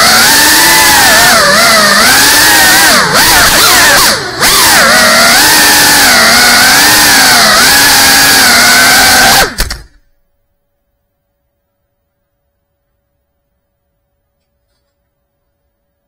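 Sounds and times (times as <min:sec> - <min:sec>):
drone motors whining: 0:00.0 - 0:10.0
sharp clicks: 0:09.4 - 0:10.0.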